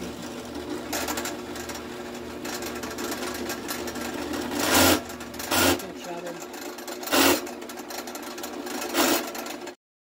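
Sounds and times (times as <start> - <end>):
drill press motor running: 0.0 - 9.8
bit cutting into wood: 4.6 - 5.9, 7.1 - 7.5, 8.9 - 9.4.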